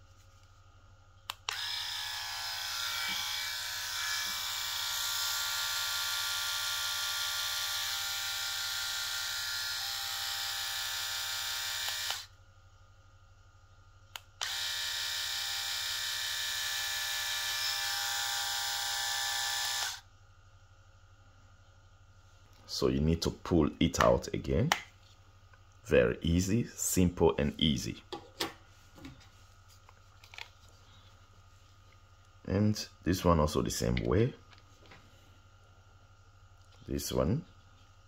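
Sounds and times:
electric trimmer buzzing: 0:01.4 - 0:12.3, 0:14.4 - 0:20.0.

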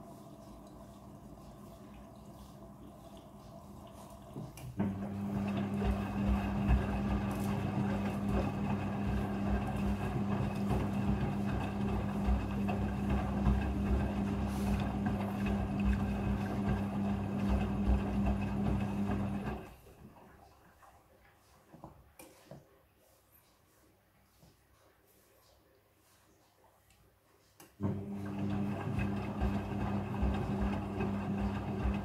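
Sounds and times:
water trickling into drum: 0:00.0 - 0:08.5
washing machine motor hum: 0:00.0 - 0:20.9, 0:27.8 - 0:32.0.

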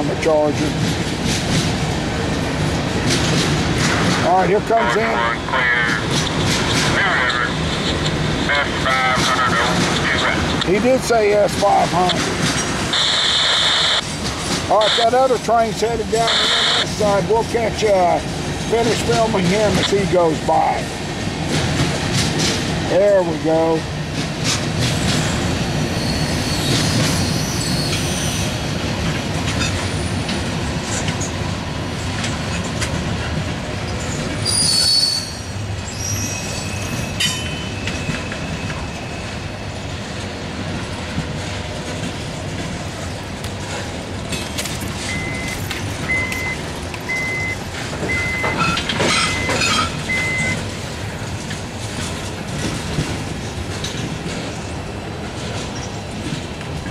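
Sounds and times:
freight train cars rolling past: 0:00.0 - 0:56.9
high wheel squeals: 0:25.8 - 0:28.6, 0:34.0 - 0:39.7, 0:45.0 - 0:50.6
short steady beep: 0:45.1 - 0:50.6.

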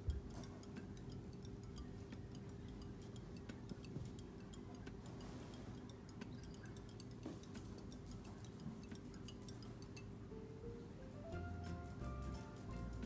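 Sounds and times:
quick ticking clicks: 0:00.0 - 0:10.2
low steady hum: 0:00.0 - 0:13.0.

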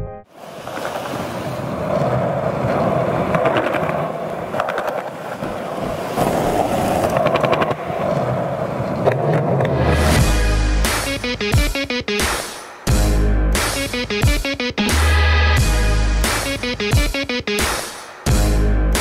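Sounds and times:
skateboard wheels rolling on pavement: 0:00.3 - 0:10.4
rapid skateboard clicks: 0:00.6 - 0:09.8.

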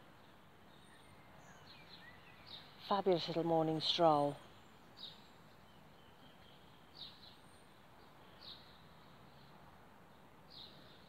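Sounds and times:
small bird chirping: 0:00.2 - 0:03.2, 0:03.8 - 0:09.6.

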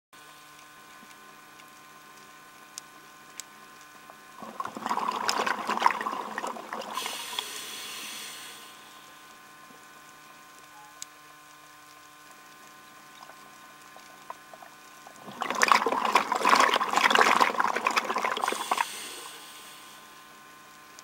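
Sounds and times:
faint steady hum: 0:00.2 - 0:21.0
bubbling regulator exhale: 0:04.3 - 0:09.3, 0:13.0 - 0:20.4.

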